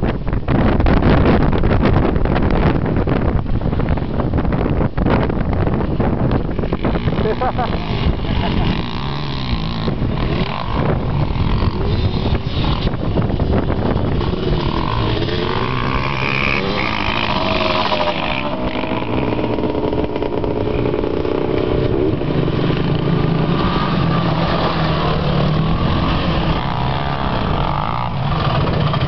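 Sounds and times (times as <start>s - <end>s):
quad engine running hard: 5.8s - 29.0s.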